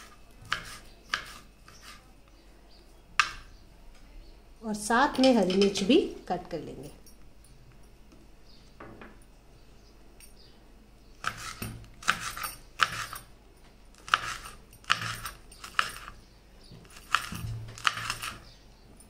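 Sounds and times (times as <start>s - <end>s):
knife cutting on chopping board: 0.4s - 2.0s, 11.2s - 13.2s, 14.0s - 15.2s, 16.9s - 18.4s.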